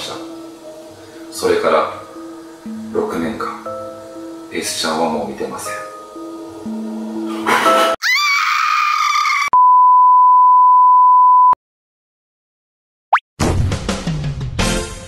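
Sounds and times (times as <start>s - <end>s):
music: 0.0s - 8.0s, 13.4s - 15.0s.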